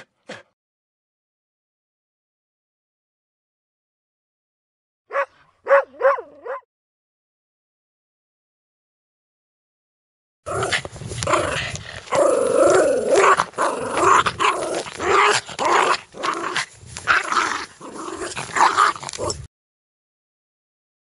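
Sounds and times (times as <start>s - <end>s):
dog growling: 10.5s - 19.5s.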